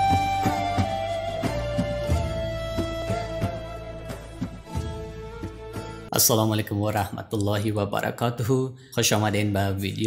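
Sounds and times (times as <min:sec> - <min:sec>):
held melodic notes: 0:00.0 - 0:06.1.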